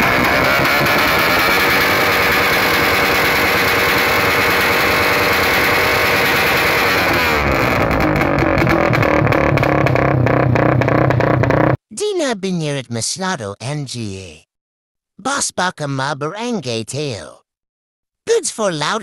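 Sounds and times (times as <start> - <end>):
motorcycle engine revving: 0.0 - 11.8
sharp exhaust pops: 0.0 - 11.8.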